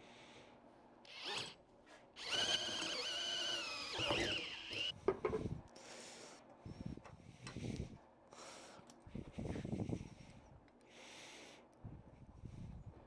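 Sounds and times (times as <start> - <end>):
power drill boring into metal: 1.1 - 1.6, 2.2 - 4.9.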